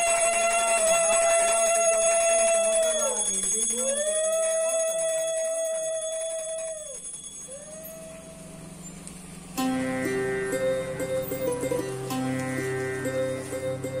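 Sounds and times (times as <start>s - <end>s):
conch shell blown: 9.6s - 14.0s.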